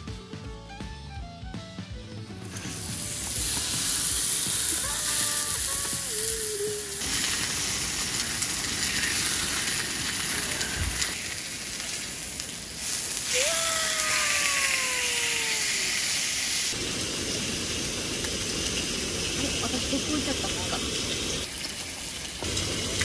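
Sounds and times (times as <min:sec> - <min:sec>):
meat sizzling on a grill: 0:02.4 - 0:23.0.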